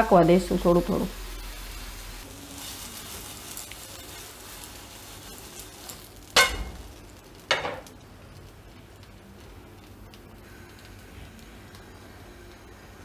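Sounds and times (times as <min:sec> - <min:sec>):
oil sizzling in a pan: 0:00.0 - 0:13.0
sharp metal clanks: 0:06.4 - 0:06.9.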